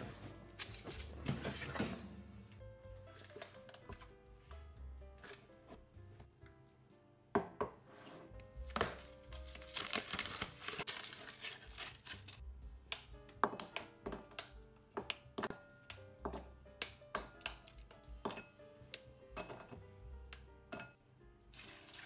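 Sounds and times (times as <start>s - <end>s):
soft background music: 0.0s - 22.0s
wrapper crinkling and tearing: 9.0s - 12.4s, 21.6s - 22.0s.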